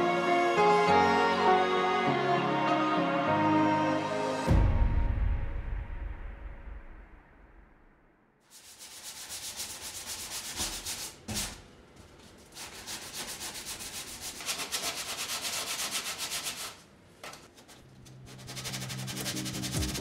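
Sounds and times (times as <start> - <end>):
sanding sponge rasping on metal: 8.5 - 11.4, 12.4 - 16.8, 17.6 - 20.0.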